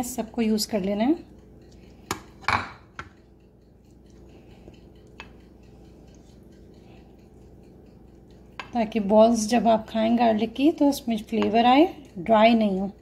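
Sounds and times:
pastry brush brushing: 3.7s - 13.0s.

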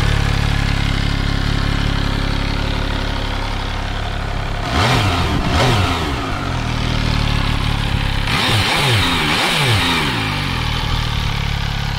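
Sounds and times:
motorcycle engine idling: 0.0s - 11.9s
engine revving in throttle blips: 4.4s - 11.4s.

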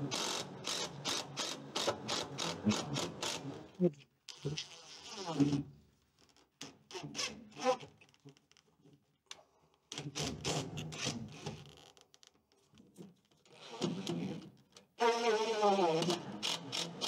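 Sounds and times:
cordless drill driving screws: 0.0s - 3.7s, 15.2s - 17.0s
screws scraping into wood: 0.0s - 3.7s, 15.0s - 17.0s.

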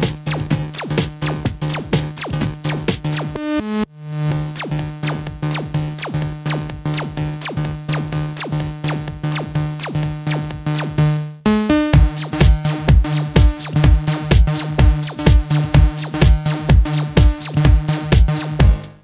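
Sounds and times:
downward-sweeping synth blips: 4.6s - 11.0s, 11.7s - 18.6s
held synth bass note: 11.7s - 18.9s.

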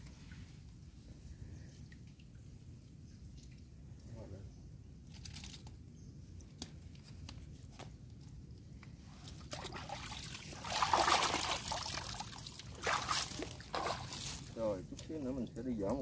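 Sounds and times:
water pouring and splashing: 9.2s - 15.2s.

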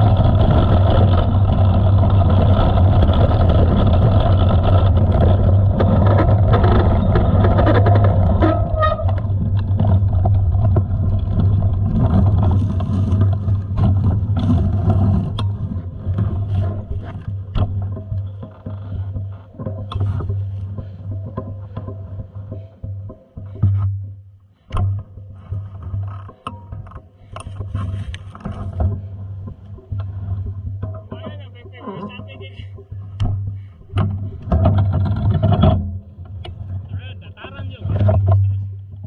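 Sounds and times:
wind rushing over microphone: 0.0s - 17.5s
bicycle rattling over bumps: 0.0s - 39.0s.

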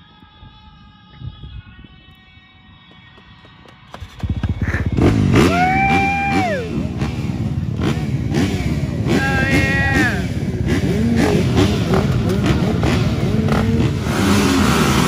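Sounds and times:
dirt bike engines revving: 3.7s - 15.0s.

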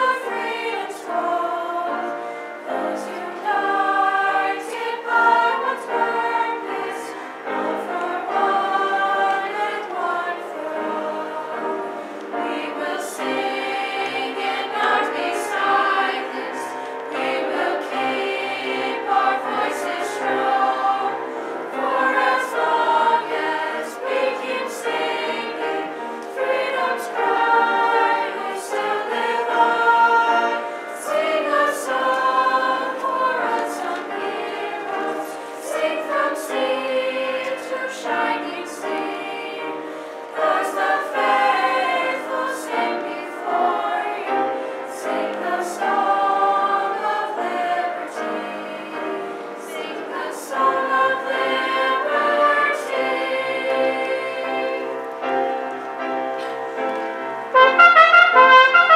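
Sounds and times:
mixed choir singing: 0.0s - 58.9s.

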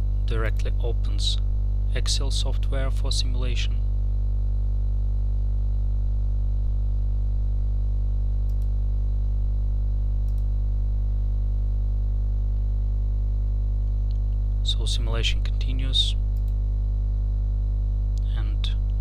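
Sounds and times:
electrical mains hum: 0.0s - 19.0s
faint clicks: 8.5s - 8.7s, 10.2s - 10.5s, 16.3s - 16.6s.

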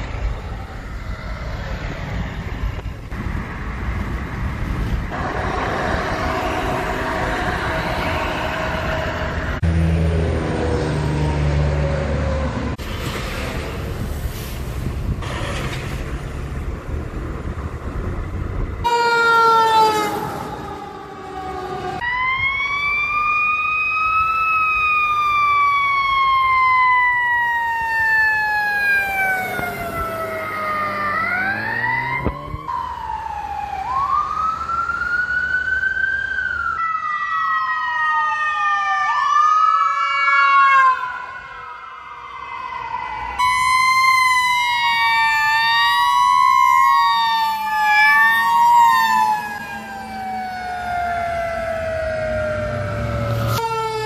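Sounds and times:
heavy truck rumbling past: 0.0s - 18.8s, 28.9s - 33.2s
emergency vehicle sirens: 0.0s - 54.0s.

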